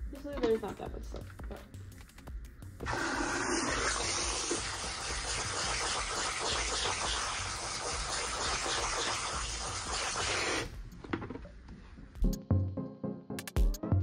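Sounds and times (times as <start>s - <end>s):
water spraying into basin: 2.8s - 10.7s.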